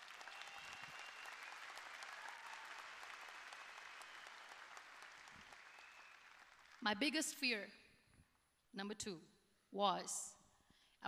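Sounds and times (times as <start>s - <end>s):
large audience applauding: 0.0s - 6.9s.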